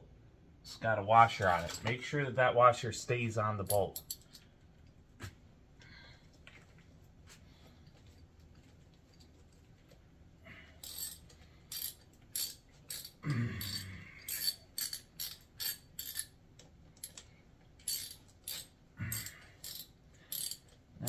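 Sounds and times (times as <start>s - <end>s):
socket ratchet clicking: 10.8s - 16.3s, 17.0s - 20.8s.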